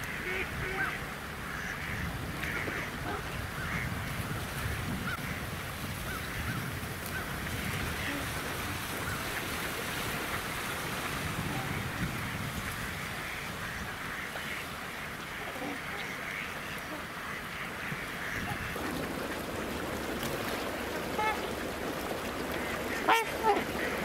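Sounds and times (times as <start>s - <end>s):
geese honking: 0.0s - 5.5s, 11.4s - 24.0s
wind rumble on microphone: 0.0s - 15.2s, 17.9s - 24.0s.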